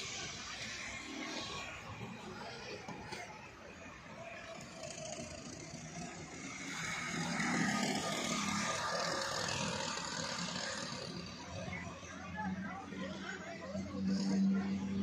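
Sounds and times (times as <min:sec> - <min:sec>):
go-kart engines running: 0:00.0 - 0:15.0.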